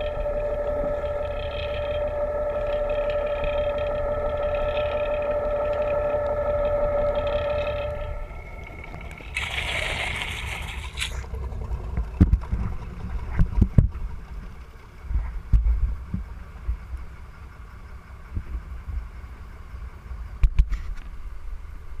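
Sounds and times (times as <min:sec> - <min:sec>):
music: 0:00.0 - 0:09.4
boat engine rumble: 0:00.0 - 0:22.0.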